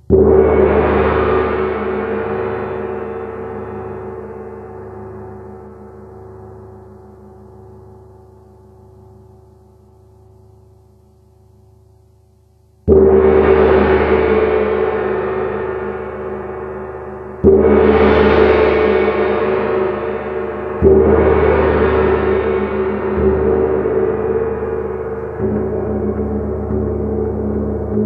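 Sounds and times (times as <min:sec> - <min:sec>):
gong struck with mallet: 0:12.9 - 0:28.0.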